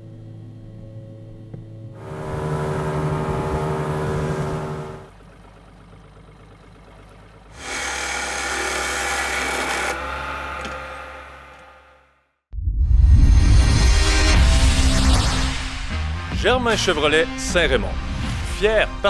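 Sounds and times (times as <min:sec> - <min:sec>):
engine running steadily: 0:00.0 - 0:11.7
wood lathe spinning: 0:07.0 - 0:11.8.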